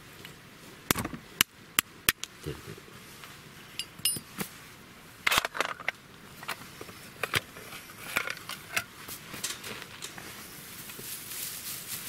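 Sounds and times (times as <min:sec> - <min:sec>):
fire kit metallic clicks and taps: 0:00.9 - 0:02.4, 0:08.2 - 0:10.2.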